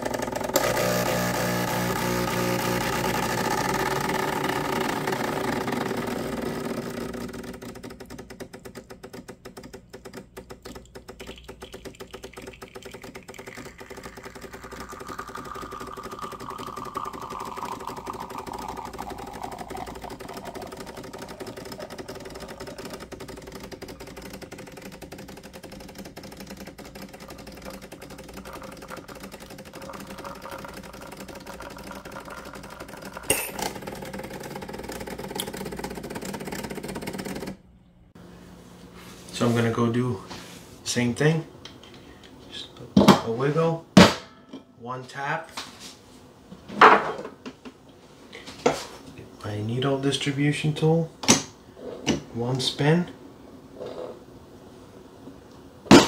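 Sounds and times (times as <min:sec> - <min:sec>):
espresso machine pump buzzing: 0:00.0 - 0:37.6.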